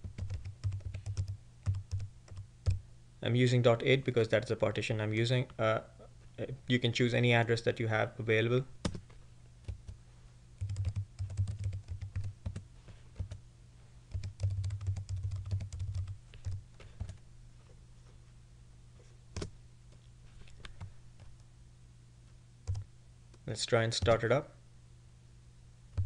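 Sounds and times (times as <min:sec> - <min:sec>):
typing on computer keyboard: 0:00.0 - 0:02.8, 0:10.6 - 0:12.6, 0:14.1 - 0:17.2.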